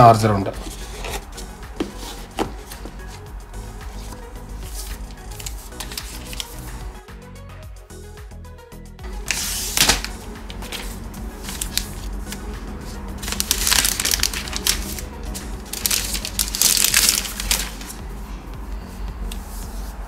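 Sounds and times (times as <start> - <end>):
plastic packaging crinkling: 4.0 - 6.7, 9.3 - 12.5, 13.1 - 18.0.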